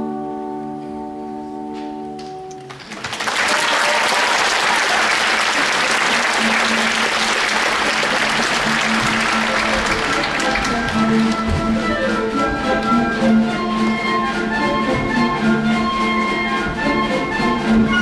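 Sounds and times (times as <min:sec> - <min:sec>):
audience applauding: 0:02.6 - 0:11.8.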